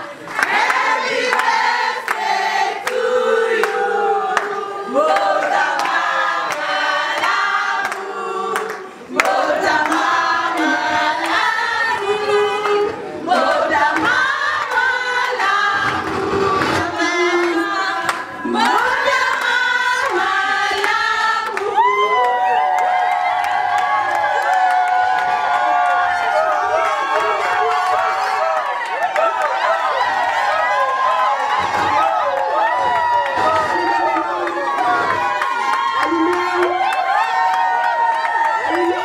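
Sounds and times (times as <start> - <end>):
group singing in chorus: 0.4 - 22.3.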